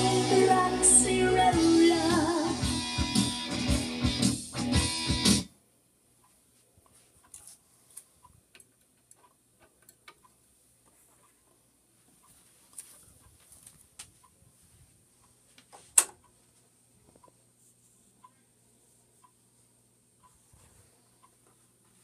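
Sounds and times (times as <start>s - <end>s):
guitar-backed song from record: 0.0s - 5.5s.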